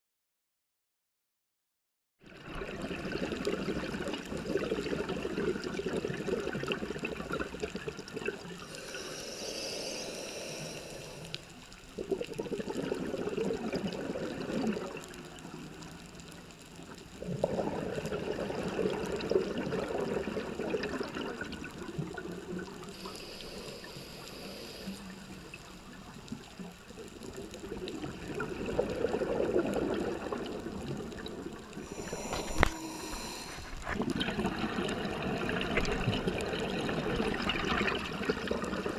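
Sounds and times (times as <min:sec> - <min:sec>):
gurgling exhaled bubbles underwater: 0:02.3 - 0:38.9
high hiss of inhaling: 0:08.6 - 0:11.6, 0:22.9 - 0:25.2, 0:31.8 - 0:33.9.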